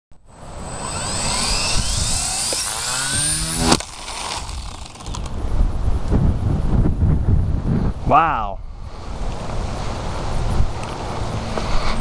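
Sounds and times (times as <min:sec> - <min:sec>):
rc helicopter whine: 0:00.3 - 0:05.5
wind buffeting microphone: 0:01.2 - 0:12.0
rotor head cracking: 0:03.6 - 0:05.4.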